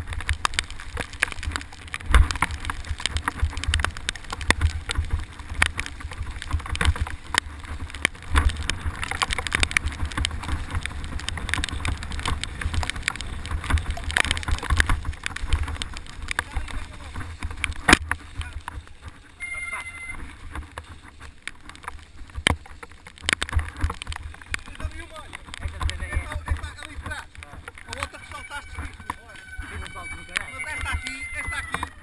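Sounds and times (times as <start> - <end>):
bike clattering over bumps: 0.0 - 19.4, 20.1 - 29.6
tyres on wet dirt: 0.0 - 32.0
wind rumbling on microphone: 0.0 - 32.0.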